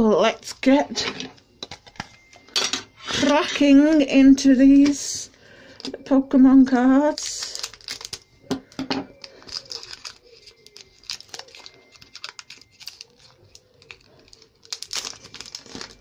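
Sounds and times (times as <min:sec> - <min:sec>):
foil wrapper crinkling and tearing: 0:07.1 - 0:16.0.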